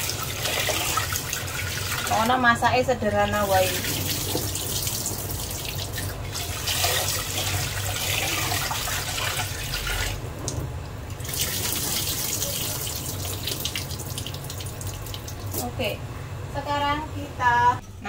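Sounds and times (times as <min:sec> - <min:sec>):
water poured into sink: 0:00.0 - 0:02.3, 0:03.4 - 0:10.2, 0:11.2 - 0:15.6.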